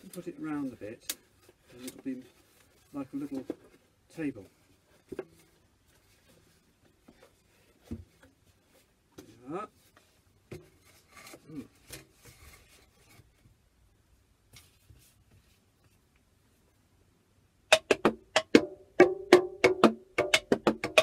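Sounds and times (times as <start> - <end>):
faint rustling and handling: 0.0 - 16.9
sticks tapping homemade drums: 17.7 - 21.0.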